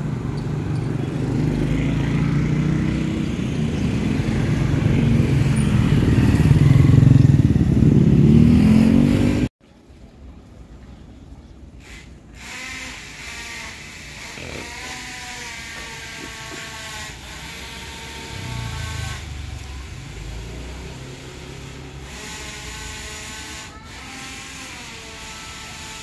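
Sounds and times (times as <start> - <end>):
vehicle low rumble: 0.0 - 9.1, 14.6 - 22.9.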